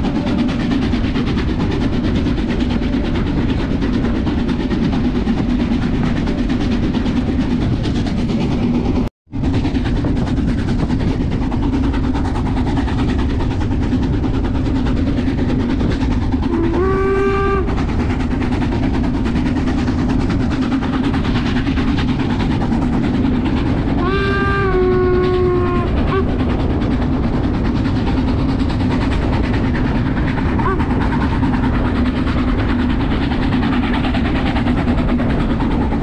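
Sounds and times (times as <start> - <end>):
steam train rumbling: 0.0 - 36.0
steam whistle blowing: 16.5 - 17.8, 24.0 - 26.3, 30.6 - 30.9.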